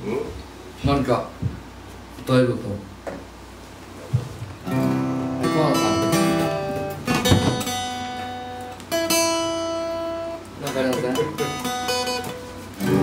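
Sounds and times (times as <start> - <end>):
acoustic guitars strumming chords: 4.6 - 13.0.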